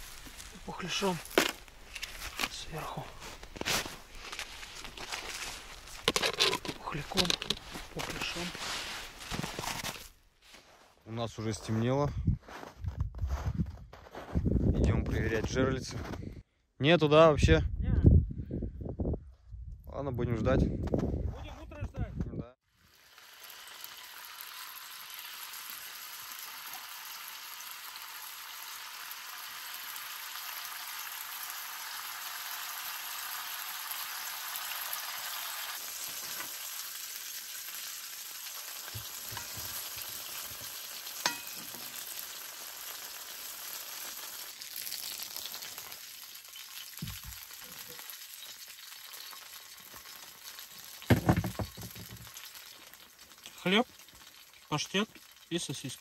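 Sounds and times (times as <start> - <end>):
sausages sizzling in a skillet: 0.0 - 9.8, 22.6 - 56.0.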